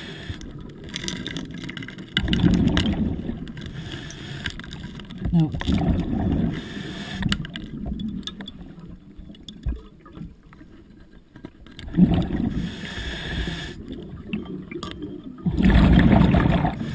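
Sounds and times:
underwater breath bubbling: 0.0 - 1.0, 2.2 - 7.9, 11.8 - 16.9
quiet regulator hiss: 0.0 - 1.6, 2.4 - 9.9, 10.5 - 15.4.

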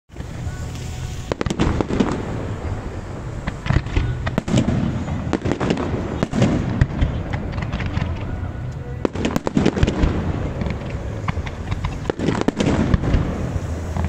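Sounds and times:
fireworks bursting with bangs: 0.1 - 14.0
low rumble: 0.1 - 14.0.

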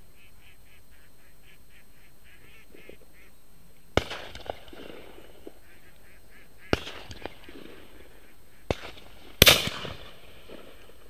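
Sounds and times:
ducks quacking: 0.0 - 3.4, 5.0 - 8.8
shotgun shots: 4.0 - 5.7, 6.6 - 11.0.

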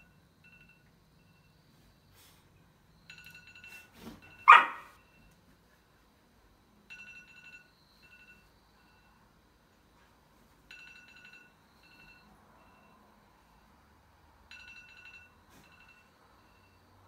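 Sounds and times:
phone alarm ringtone: 0.0 - 1.6, 3.0 - 5.4, 6.9 - 9.3, 10.7 - 13.8, 14.5 - 17.0
dog barking: 4.4 - 5.0.

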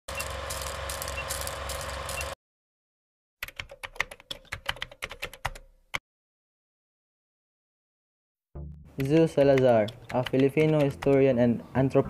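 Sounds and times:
typewriter key clicks: 9.0 - 11.2.

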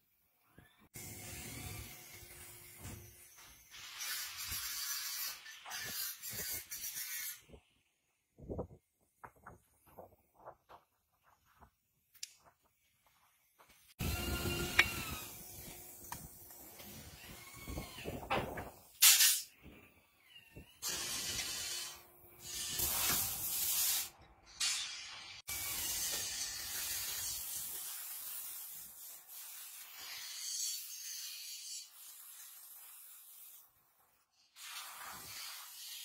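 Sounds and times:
aerosol spray hissing bursts: 20.8 - 24.1, 34.6 - 36.0.

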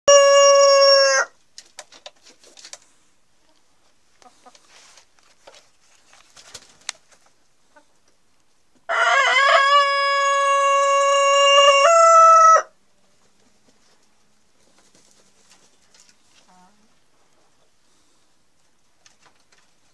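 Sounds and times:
rooster crowing: 0.1 - 1.4, 8.9 - 12.8.

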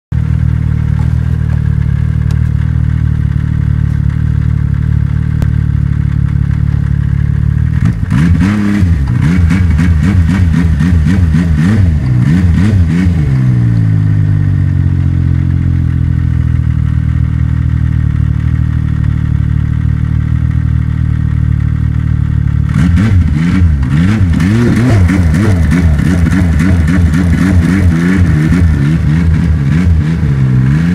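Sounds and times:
snowmobile engine revving: 7.6 - 16.0, 22.6 - 30.9.

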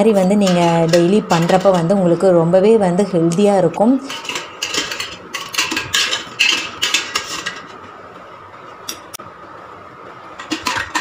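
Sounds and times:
steel tumblers and spoons clinking: 0.0 - 2.0, 3.9 - 7.9, 10.4 - 11.0.

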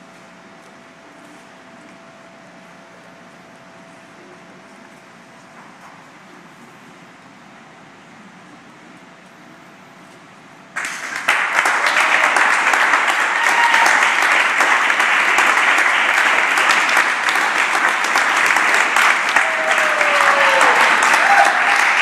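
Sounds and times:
crowd applauding: 10.8 - 22.0.

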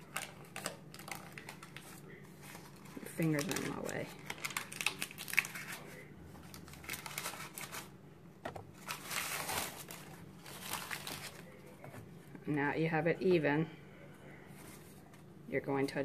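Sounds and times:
backing paper crinkling: 0.0 - 12.2.

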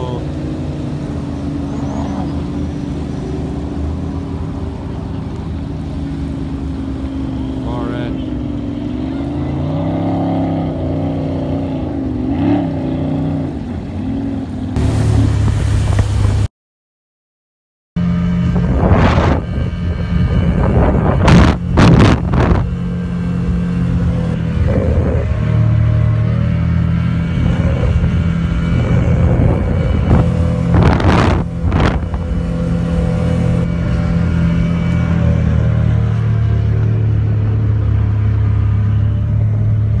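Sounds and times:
outboard engines running: 0.0 - 16.5, 18.0 - 40.0
rushing water noise: 0.0 - 16.5, 18.0 - 40.0.

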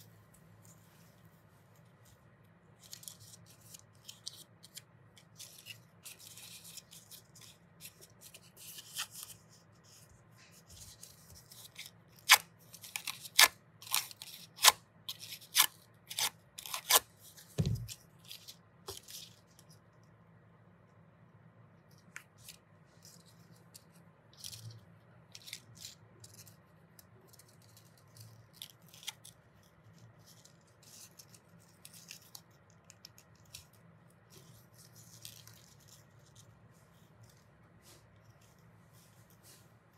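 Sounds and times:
scissors snipping paper: 10.8 - 17.1.

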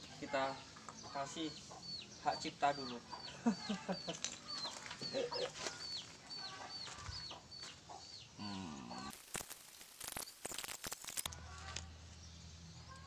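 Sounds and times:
chicks peeping: 0.5 - 9.1
chicken clucking: 1.0 - 9.1
scratchy sounds: 9.1 - 11.8.

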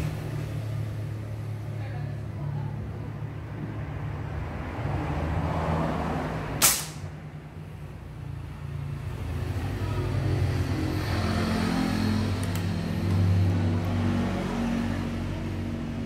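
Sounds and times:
air rifle shot: 6.6 - 7.1.

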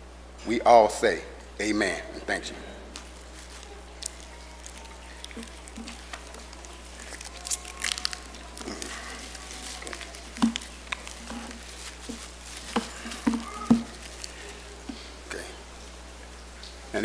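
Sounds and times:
low steady hum: 0.0 - 17.0
small cups clicking and tapping: 3.4 - 14.5.

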